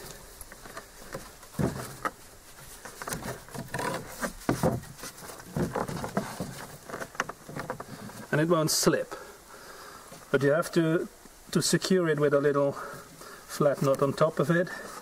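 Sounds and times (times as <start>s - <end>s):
cord rustling and squeaking: 0.0s - 8.3s.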